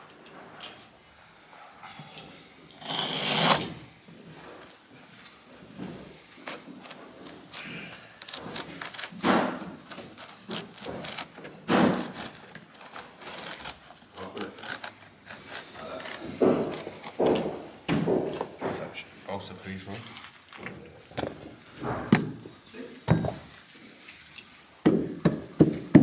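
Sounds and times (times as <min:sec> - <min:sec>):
carpet scraping and rustling: 0:02.9 - 0:19.0.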